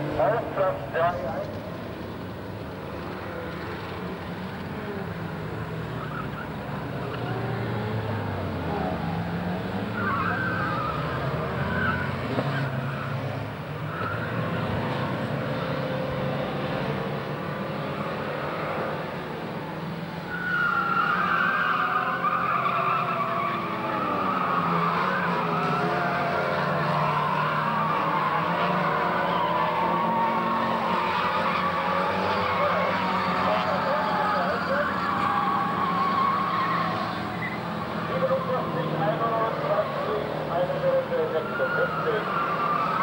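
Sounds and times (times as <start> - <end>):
race car engines revving: 0.0 - 43.0
tyres squealing: 9.8 - 13.2, 20.2 - 43.0.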